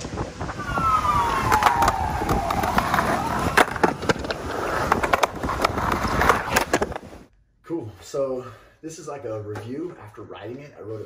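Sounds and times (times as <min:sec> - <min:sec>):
skateboard wheels whirring: 0:00.0 - 0:07.3.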